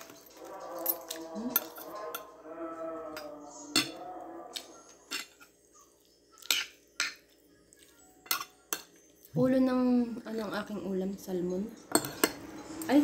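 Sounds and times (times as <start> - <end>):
wavering voice-like tone: 0.3 - 6.0
cutlery clinking on a plate: 3.2 - 4.0, 5.0 - 5.6, 6.4 - 7.2, 8.2 - 9.0, 11.9 - 12.5.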